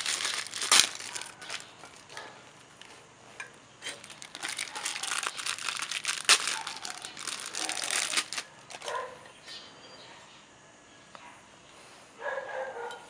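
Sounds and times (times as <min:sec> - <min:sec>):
plastic bag crinkling: 0:00.0 - 0:03.0, 0:03.8 - 0:09.0.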